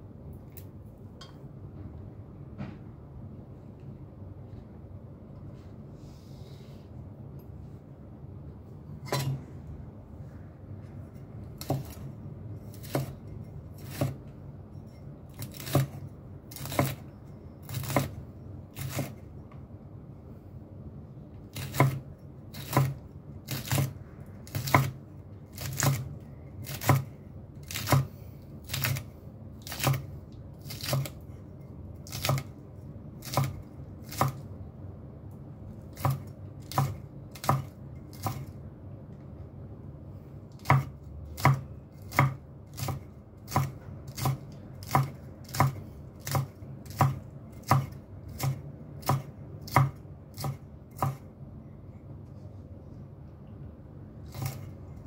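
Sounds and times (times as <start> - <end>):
knife chopping on cutting board: 11.6 - 12.1, 12.7 - 14.2, 15.4 - 17.0, 17.7 - 18.2, 21.5 - 28.1, 29.6 - 31.2, 32.0 - 32.5, 33.2 - 34.4, 35.9 - 38.5, 40.6 - 51.2, 54.3 - 54.7.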